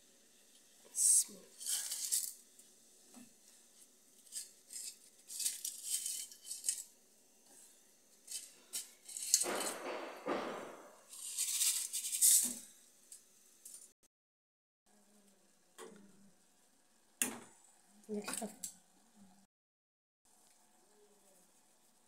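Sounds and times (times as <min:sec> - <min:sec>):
noodles rattling in steel bowl: 0:01.0 - 0:02.7, 0:04.2 - 0:07.0, 0:08.2 - 0:10.0, 0:11.1 - 0:12.8.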